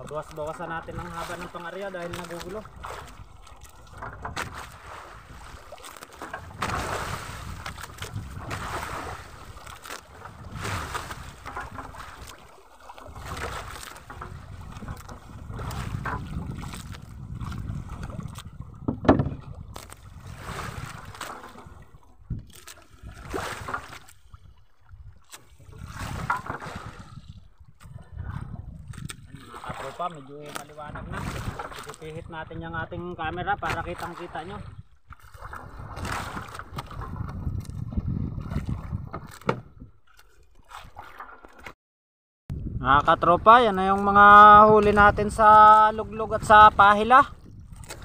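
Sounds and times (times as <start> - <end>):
water splashing against boat: 0.0 - 41.8, 42.5 - 48.0
wind on microphone: 2.5 - 12.4, 13.0 - 30.0, 30.6 - 40.0, 42.5 - 48.0
sharp knocks on boat: 3.8 - 4.8, 6.2 - 8.8, 13.2 - 16.9, 18.8 - 19.6, 38.4 - 39.9
loud thump: 18.9 - 19.4.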